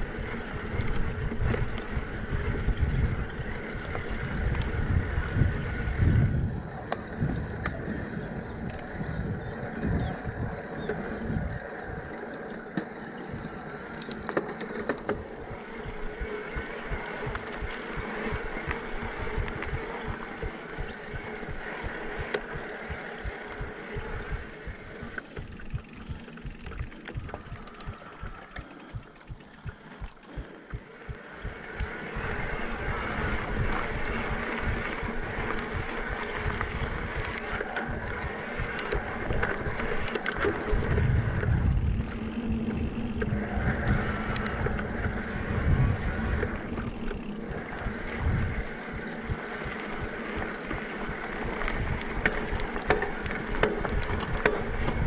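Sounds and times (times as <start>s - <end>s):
wind rumbling on microphone: 0.0s - 12.2s, 14.9s - 55.0s
electric bike motor running: 0.0s - 55.0s
low rhythmic thumps: 15.4s - 37.3s.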